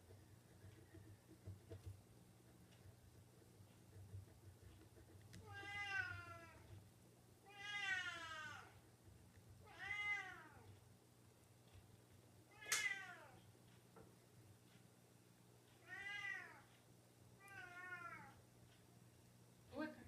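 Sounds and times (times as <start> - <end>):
cat meowing: 5.4 - 6.6, 7.5 - 8.7, 9.7 - 10.7, 12.5 - 13.4, 15.8 - 16.7, 17.4 - 18.4.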